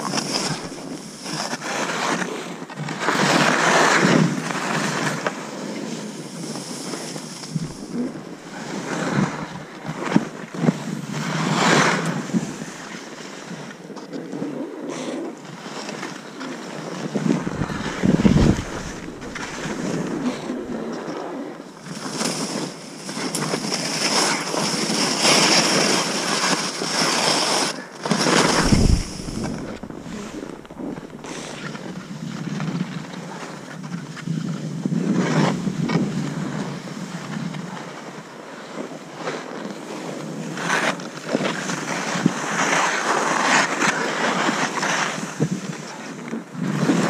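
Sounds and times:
skis scraping through snow: 0:07.5 - 0:09.0, 0:17.3 - 0:20.8, 0:28.2 - 0:32.0
wind buffeting microphone: 0:07.5 - 0:09.6, 0:17.2 - 0:20.9, 0:28.3 - 0:32.3
low thump: 0:07.6 - 0:08.2, 0:17.4 - 0:20.8, 0:28.4 - 0:31.9.

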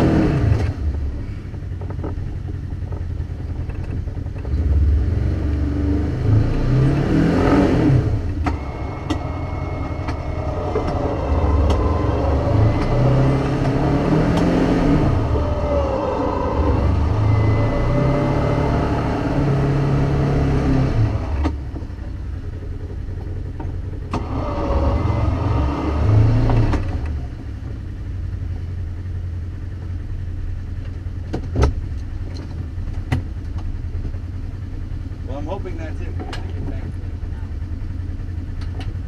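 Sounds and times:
vehicle engine revving: 0:00.0 - 0:28.4.

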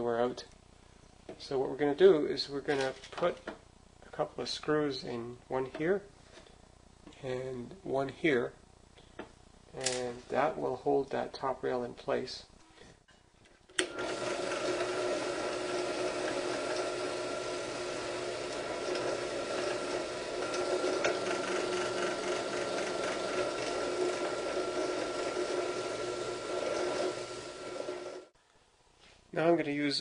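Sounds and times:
drill press drilling into wood: 0:13.8 - 0:28.3.

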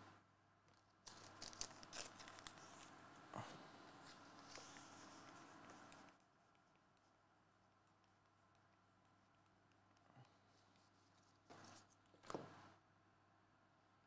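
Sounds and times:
trading cards rustling and ticking: 0:00.7 - 0:03.2.

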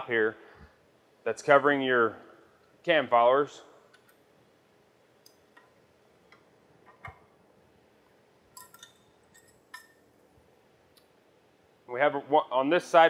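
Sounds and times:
metallic clicks and clinks: 0:08.6 - 0:10.0.

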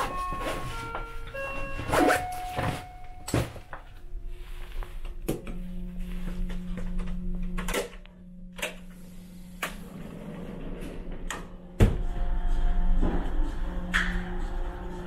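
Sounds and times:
steady low hum: 0:02.8 - 0:15.0.

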